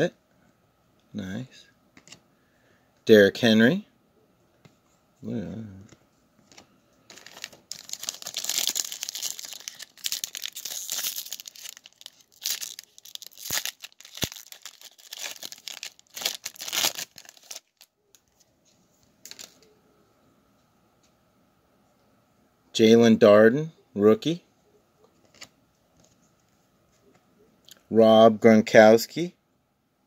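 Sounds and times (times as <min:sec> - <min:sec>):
wrapper tearing and crinkling: 0:07.1 - 0:17.9, 0:19.3 - 0:19.6.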